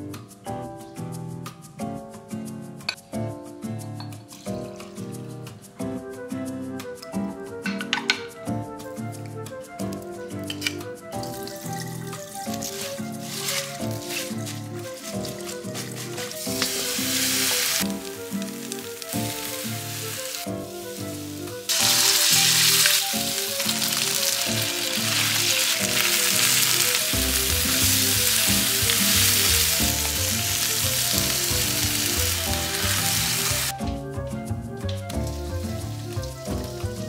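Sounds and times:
background music: 0.0s - 37.0s
food sizzling in a wok: 11.3s - 33.7s, 35.3s - 37.0s.

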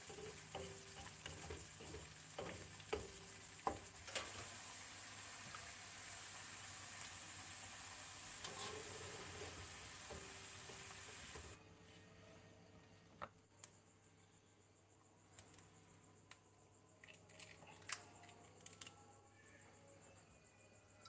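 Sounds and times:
spatulas stirring in a wok: 0.0s - 4.0s, 8.4s - 11.6s
cabbage sizzling in hot oil: 0.0s - 11.6s.

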